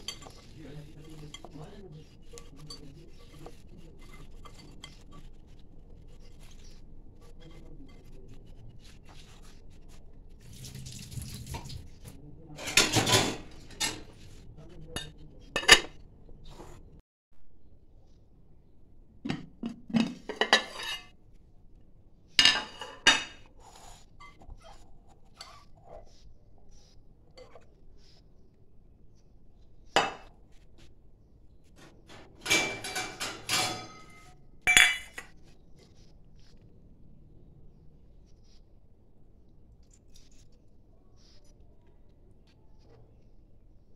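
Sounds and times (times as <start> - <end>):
glassware clattering: 0.0 - 1.6, 12.6 - 14.1, 32.4 - 35.3
glass and steel bowls clinking: 0.0 - 5.2, 32.4 - 35.3
glass lid clinking on bowl: 32.7 - 35.3.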